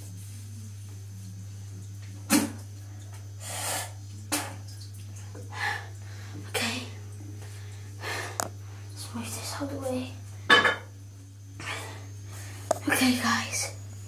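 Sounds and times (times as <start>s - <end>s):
person sneezing: 2.3s - 2.6s.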